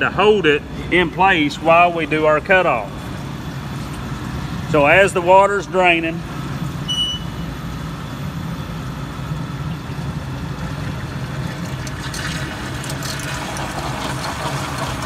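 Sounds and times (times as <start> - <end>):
machine humming steadily: 0.0 - 15.0
water draining: 10.8 - 15.0.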